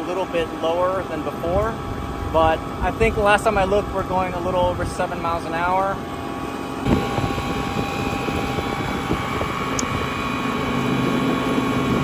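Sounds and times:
low hum: 0.0 - 12.0
electric motor whine: 6.4 - 12.0
wind noise: 6.8 - 12.0.

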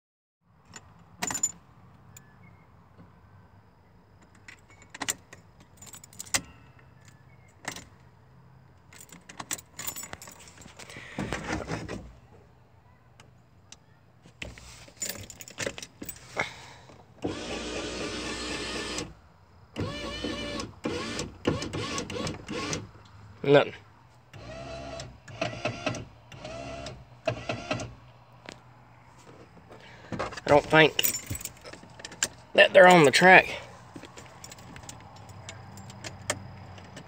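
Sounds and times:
keys jangling and clicking: 4.4 - 6.5, 8.9 - 11.0, 14.9 - 16.2, 30.6 - 32.4, 34.0 - 37.0.

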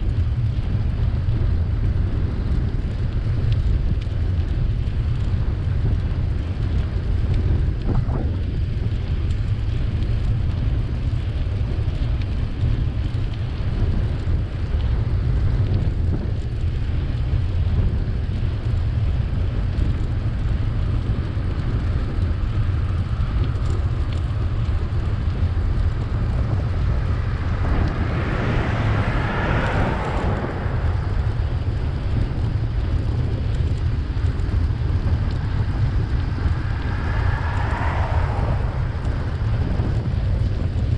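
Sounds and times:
tyre and road noise: 0.0 - 40.9
wind buffeting microphone: 0.0 - 40.9
vehicle passing: 23.0 - 40.9.

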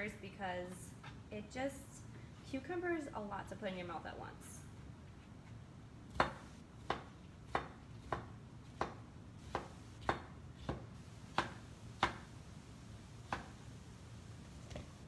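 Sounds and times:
knife slicing cucumber: 6.1 - 12.2.

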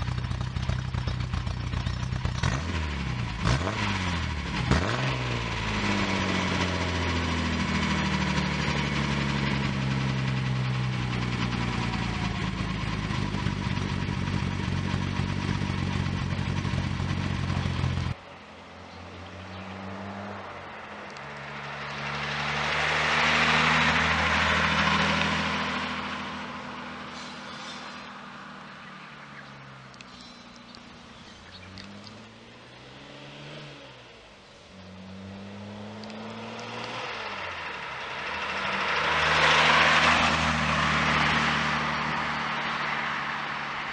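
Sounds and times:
car engine idling: 0.0 - 18.2
car driving past: 18.7 - 43.9.

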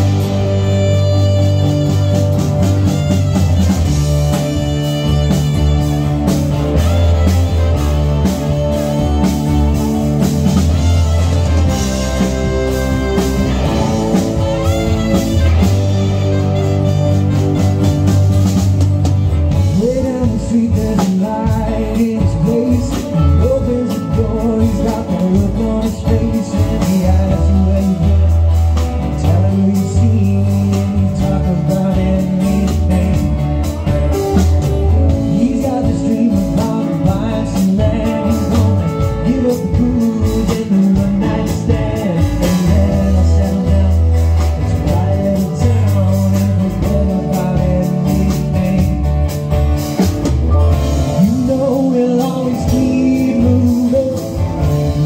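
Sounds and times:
saxophones: 0.0 - 19.3
wavering lead melody: 0.0 - 20.7
bass: 0.0 - 55.0
drums: 0.0 - 55.0
electric guitar: 0.0 - 55.0
keyboards: 0.0 - 55.0.

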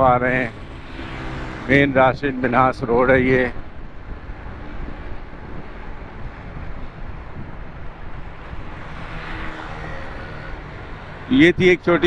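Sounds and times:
wind buffeting microphone: 0.0 - 9.3
road traffic noise: 0.0 - 12.0.

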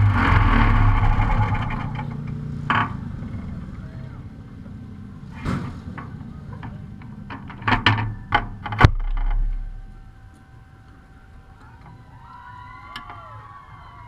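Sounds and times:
brief low rumble: 0.0 - 2.4, 8.0 - 10.6
sharp clicks and knocks: 0.0 - 3.6, 5.4 - 10.5
hard clunk: 5.3 - 10.2.

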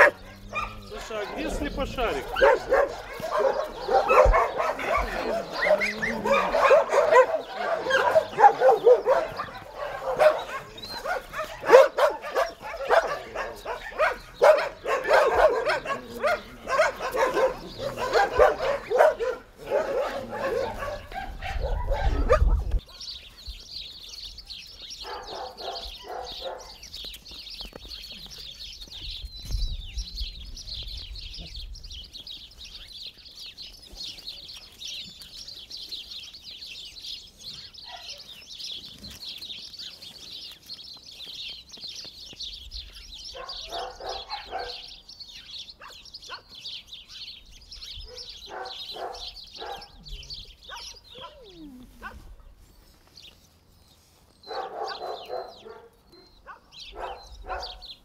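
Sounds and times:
dogs barking: 0.0 - 23.2, 24.9 - 27.0, 37.8 - 38.4, 43.3 - 45.1, 45.8 - 46.8, 48.0 - 52.6, 54.4 - 58.0
small birds chirping: 0.0 - 58.0.

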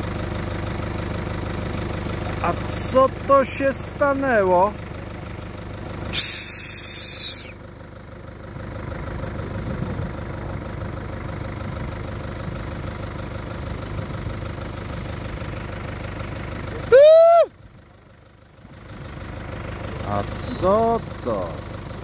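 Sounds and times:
vehicle engine idling: 0.0 - 22.0
short loud tone: 6.2 - 7.4.

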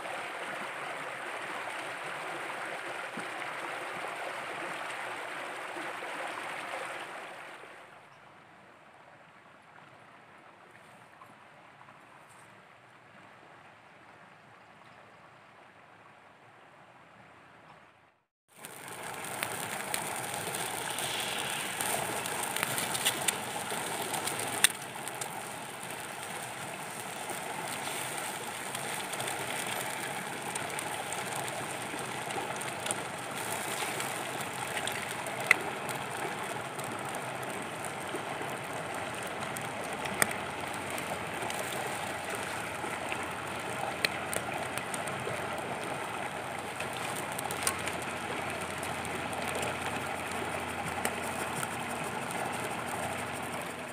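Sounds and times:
food sizzling on hot stone: 18.5 - 39.0, 40.0 - 42.6
wood fire crackling and popping: 18.5 - 53.9.

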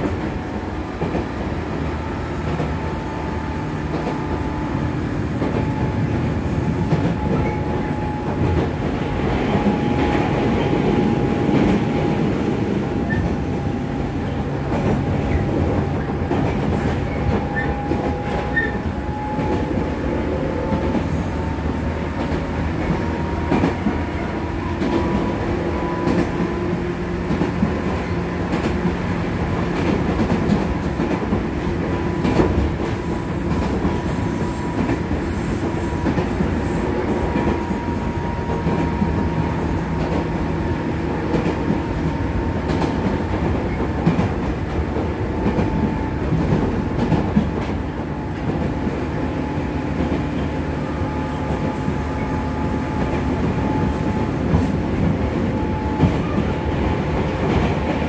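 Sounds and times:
train wheels and motor rumble: 0.0 - 58.0
rail-joint clicks: 3.8 - 10.8, 13.0 - 19.8, 22.2 - 26.5, 27.2 - 49.3.

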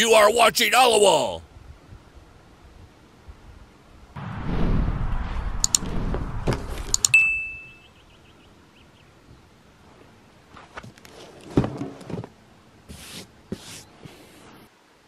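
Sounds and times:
short bell ding: 7.1 - 7.8.

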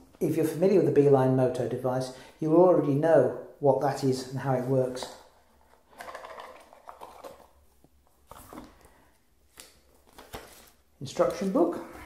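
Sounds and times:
cardboard and paper rustling: 8.1 - 8.9, 9.5 - 12.0.

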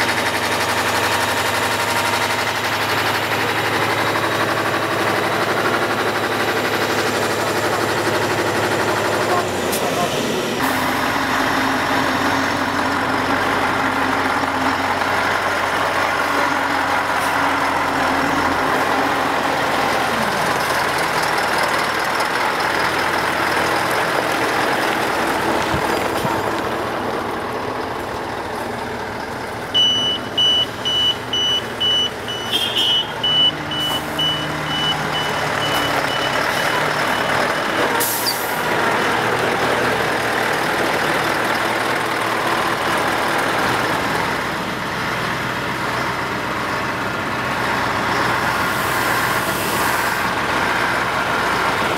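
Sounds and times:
truck diesel engine running: 0.0 - 51.9
reversing alarm beeping: 29.8 - 38.4.

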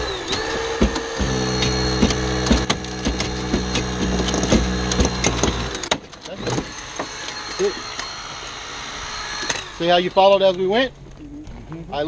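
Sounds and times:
hydraulic pump running: 0.0 - 10.8
sharp cracks and clicks of car body: 0.2 - 7.4.

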